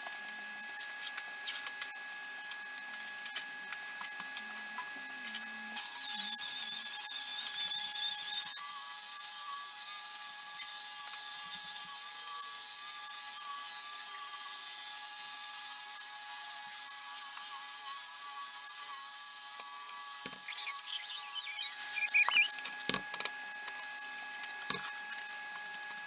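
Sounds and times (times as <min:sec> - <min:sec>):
electric polisher whine: 0:16.9 - 0:23.2.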